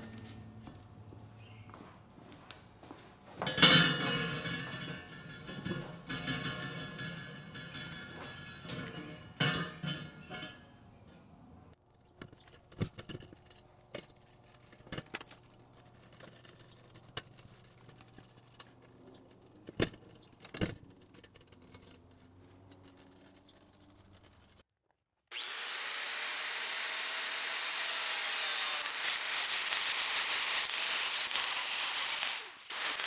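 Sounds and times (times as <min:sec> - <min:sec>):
metal pieces clinking and clanking: 0:03.4 - 0:10.8.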